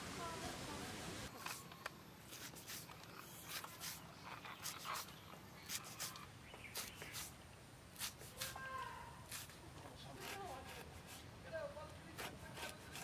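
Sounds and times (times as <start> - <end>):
knife snipping plant stems: 8.0 - 11.2.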